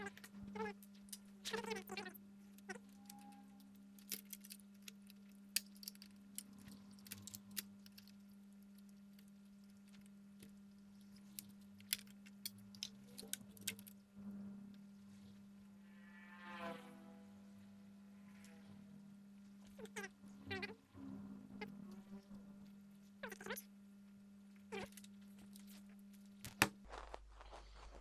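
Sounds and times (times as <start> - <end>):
steady low hum: 0.0 - 28.0
cable connectors clicking: 11.3 - 14.0
short pitched tone: 15.9 - 17.6.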